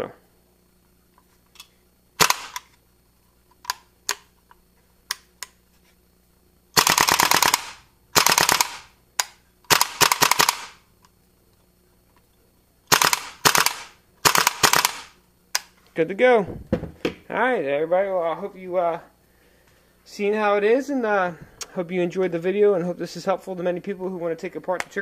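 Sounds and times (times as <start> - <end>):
rapid bolt cycling with gas hiss: 1.2 - 2.8, 3.4 - 5.6, 6.7 - 15.9
airsoft rifle dry-fire clicks: 6.8 - 11.2, 12.9 - 15.8.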